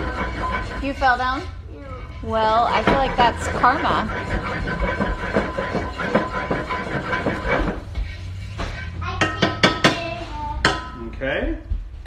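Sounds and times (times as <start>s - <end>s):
fork scraping skillet: 0.0s - 10.3s
fork tapping skillet: 2.7s - 11.0s.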